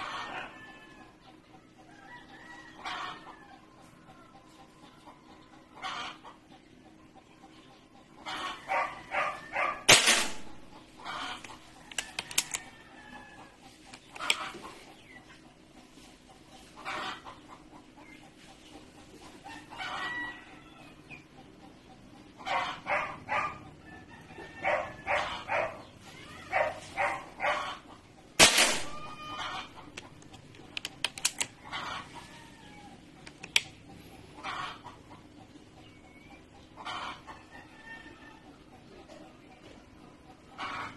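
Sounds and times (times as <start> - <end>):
chickens clucking: 0.0 - 40.9
soft noisy sounds: 0.0 - 40.9
sharp clicks: 11.4 - 12.7, 29.9 - 31.6, 33.2 - 33.8.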